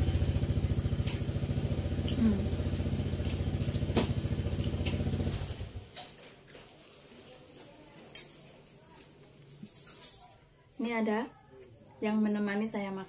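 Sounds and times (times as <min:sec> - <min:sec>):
motorcycle engine idling: 0:00.0 - 0:05.9.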